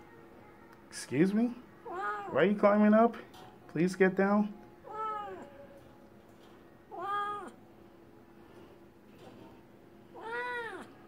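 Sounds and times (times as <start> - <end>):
cat meowing: 1.8 - 2.4, 4.8 - 5.5, 6.9 - 7.6, 10.2 - 11.0.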